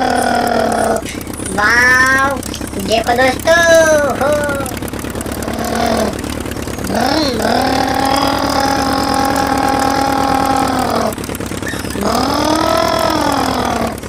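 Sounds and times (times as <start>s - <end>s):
voice calling long held note: 0.0s - 14.0s.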